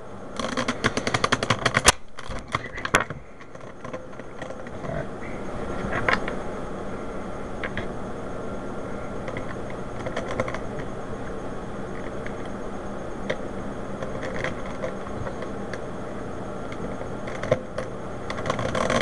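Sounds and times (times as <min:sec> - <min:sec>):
sharp plastic snaps: 0:00.4 - 0:04.6.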